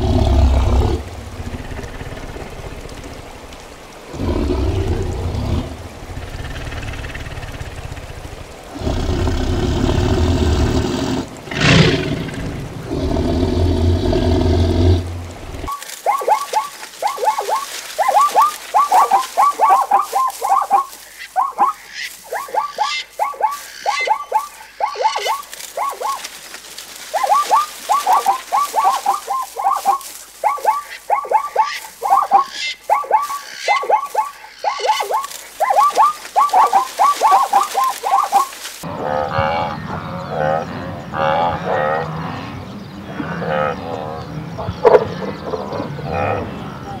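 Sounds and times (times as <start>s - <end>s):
quick chirping calls: 15.7s - 38.8s.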